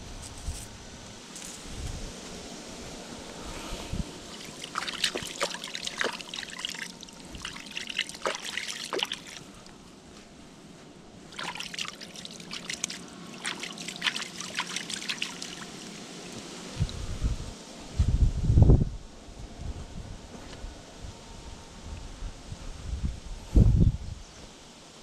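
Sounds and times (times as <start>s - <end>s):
hands splashing in water: 4.3s - 9.7s, 11.3s - 16.4s
water trickling and dripping: 4.3s - 9.8s, 11.3s - 17.0s.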